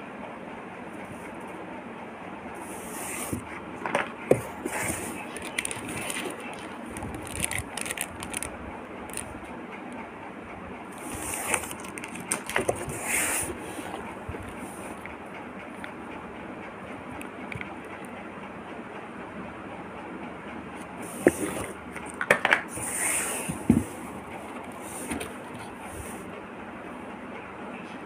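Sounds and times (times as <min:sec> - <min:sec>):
paper packing rustling: 0:04.3 - 0:08.5, 0:11.0 - 0:14.6
plastic packaging clicks: 0:05.3 - 0:08.5, 0:11.5 - 0:12.8.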